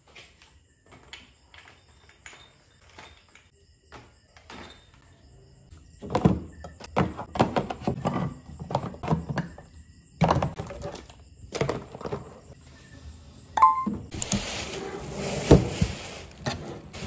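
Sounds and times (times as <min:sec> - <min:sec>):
tin cans knocking: 0:06.0 - 0:12.3.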